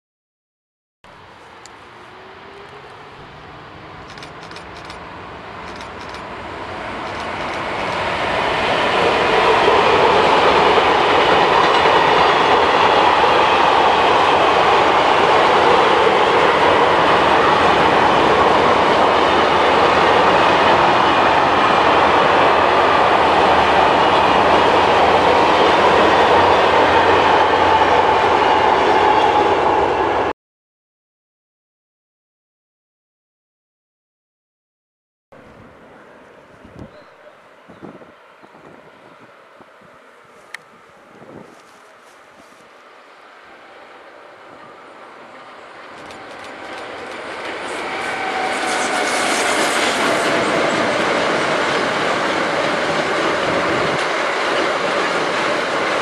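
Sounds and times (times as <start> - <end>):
freight train passing: 1.1 - 30.3, 35.4 - 56.0
train wheels clickety-clack: 4.0 - 6.3, 7.0 - 27.9, 45.8 - 56.0.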